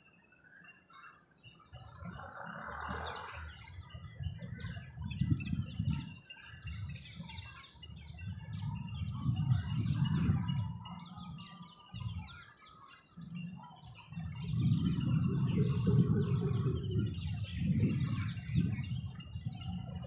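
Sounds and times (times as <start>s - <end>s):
birds chirping and twittering: 0.0s - 20.0s
low rumble: 14.2s - 19.9s.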